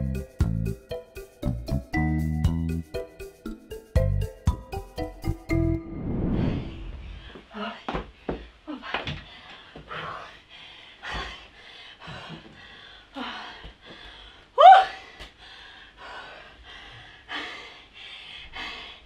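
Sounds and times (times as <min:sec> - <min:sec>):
woman breathing hard: 0:06.9 - 0:19.0
woman rising vocal cry: 0:14.6 - 0:15.0.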